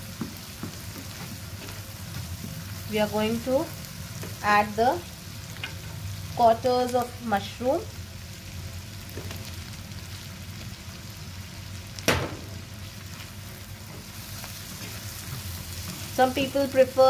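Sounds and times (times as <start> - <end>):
spatula stirring mushrooms: 0.0 - 6.0, 13.0 - 17.0
onions sizzling in a pan: 0.0 - 17.0
sharp knock: 12.1 - 12.5.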